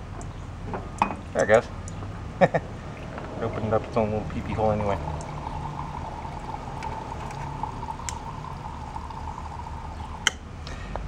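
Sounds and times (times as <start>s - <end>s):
fuel running into a ceramic mug: 2.8s - 10.4s.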